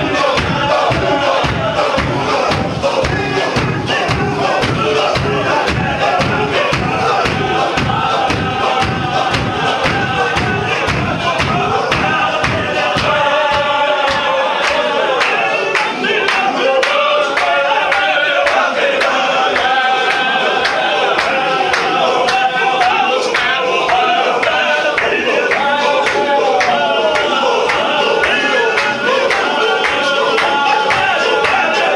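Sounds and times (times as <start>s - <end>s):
heavy low thumps: 0.0s - 14.4s
sharp even beats: 0.0s - 31.7s
men chanting in unison: 0.0s - 31.9s.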